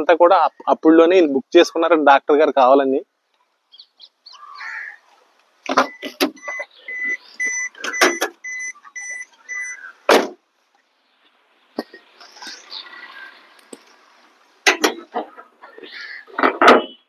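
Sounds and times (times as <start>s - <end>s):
car warning chime beeping: 5.7s - 9.9s
sharp clicks and knocks: 7.4s - 8.4s, 14.6s - 15.5s.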